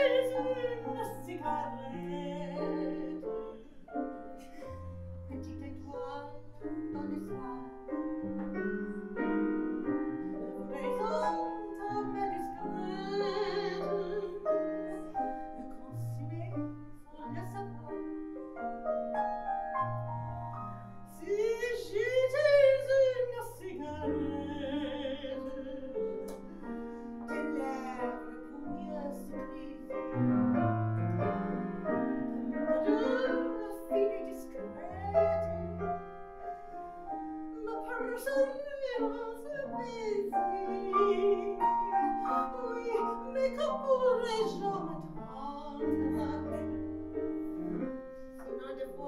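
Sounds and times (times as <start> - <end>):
woman singing operatically: 0.0 - 3.6, 5.3 - 7.7, 10.4 - 18.0, 21.1 - 26.2, 27.3 - 30.1, 32.1 - 35.6, 37.6 - 46.8, 48.4 - 49.0
grand piano: 0.0 - 49.0.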